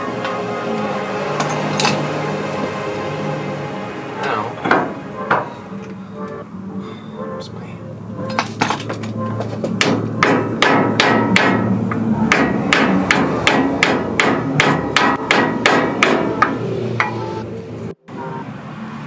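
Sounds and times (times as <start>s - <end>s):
sledgehammer striking wood block: 9.8s - 17.2s.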